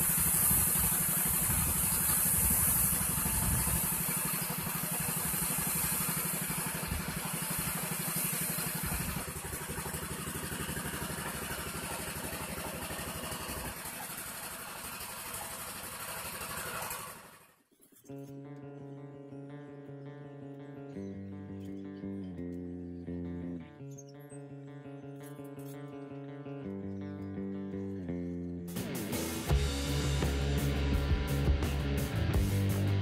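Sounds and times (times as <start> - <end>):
spray gun hissing: 0.0 - 17.4
air compressor engine running: 0.0 - 17.6.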